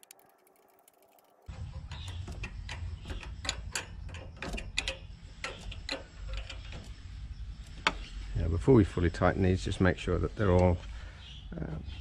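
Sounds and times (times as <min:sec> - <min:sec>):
metal parts and tools clicking: 0:00.0 - 0:08.1.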